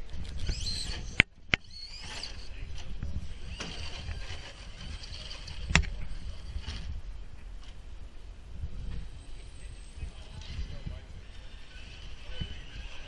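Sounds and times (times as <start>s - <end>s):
electric toy car motor running: 0.4s - 2.5s, 3.2s - 6.9s, 10.0s - 13.0s.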